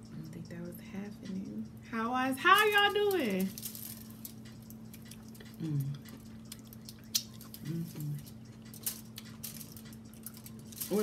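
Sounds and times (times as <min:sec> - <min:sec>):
person chewing: 0:03.9 - 0:10.8
person humming mm: 0:05.5 - 0:06.1, 0:07.6 - 0:08.3.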